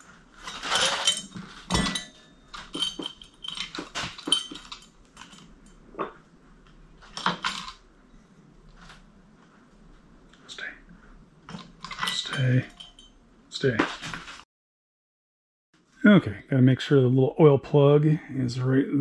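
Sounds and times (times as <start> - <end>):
metal parts and tools clinking: 0.0 - 7.8, 11.5 - 14.4.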